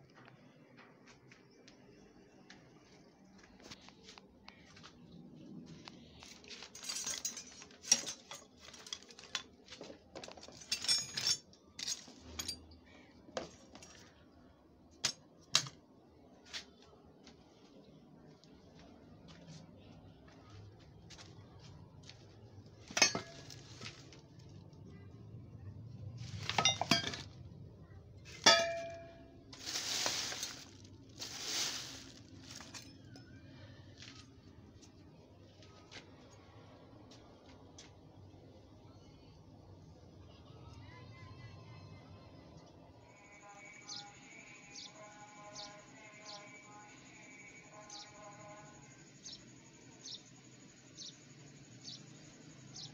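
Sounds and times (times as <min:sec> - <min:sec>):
metal tools clinking and clattering: 0:06.4 - 0:12.8, 0:22.9 - 0:24.1, 0:26.3 - 0:27.4, 0:28.3 - 0:33.3
sharp metallic clang: 0:22.9 - 0:23.6, 0:28.3 - 0:29.3
plastic bag rustling: 0:29.5 - 0:33.0.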